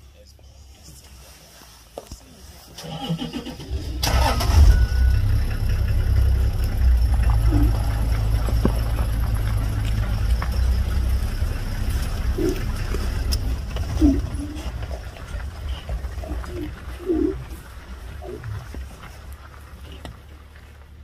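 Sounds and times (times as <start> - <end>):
vehicle engine starting and rumbling: 2.8 - 21.0.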